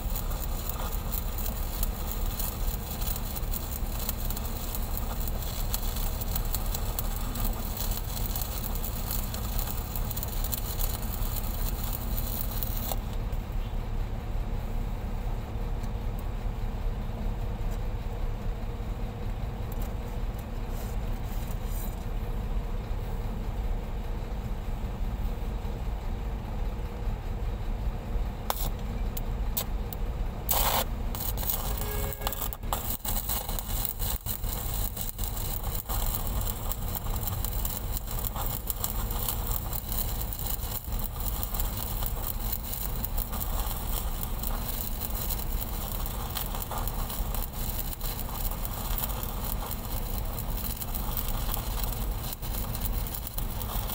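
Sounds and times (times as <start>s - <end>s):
welding electrode clicks: 0.0s - 13.3s, 28.5s - 53.9s
welding arc crackling and sizzling: 0.0s - 13.6s, 28.3s - 53.9s
low machine hum: 0.0s - 53.9s.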